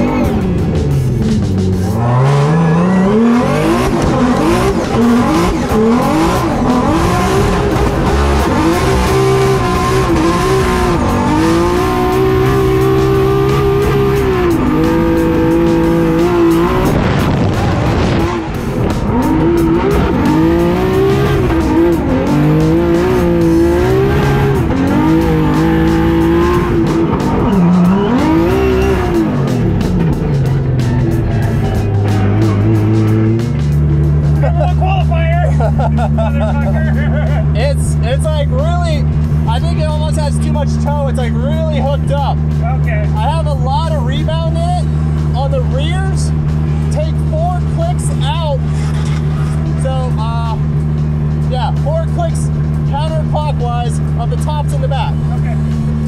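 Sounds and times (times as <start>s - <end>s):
car engine revving: 0.0s - 56.0s
tyre squeal: 2.0s - 3.6s.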